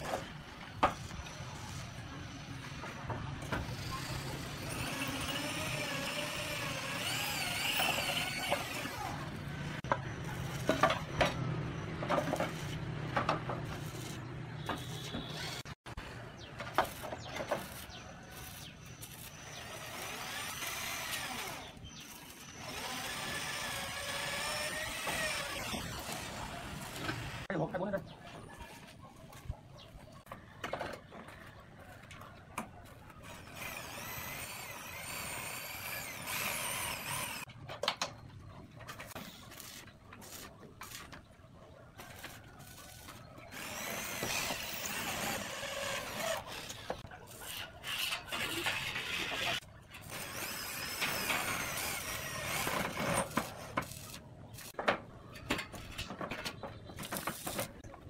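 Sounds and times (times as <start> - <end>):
power drill running: 3.7 - 9.2, 19.4 - 27.5, 33.3 - 37.5, 43.5 - 46.9, 50.1 - 53.0
roof tiles knocking and clacking: 54.7 - 58.0.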